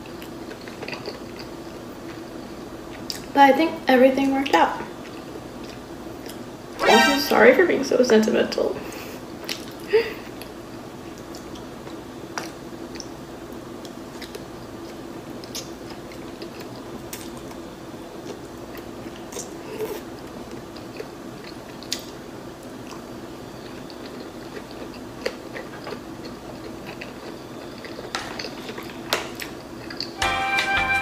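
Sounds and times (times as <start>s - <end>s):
chewing noodles: 0.1s - 3.3s, 13.8s - 17.6s, 18.2s - 30.2s.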